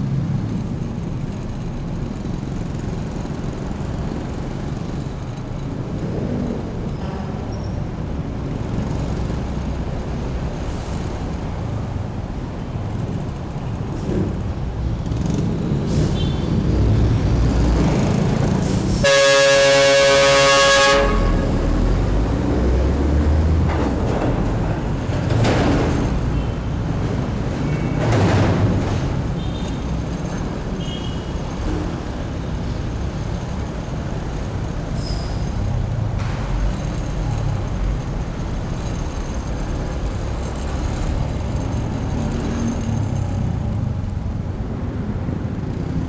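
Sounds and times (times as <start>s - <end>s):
vehicles swooshing past: 13.7s - 46.0s
vehicle horn: 19.0s - 22.0s, 30.8s - 31.3s.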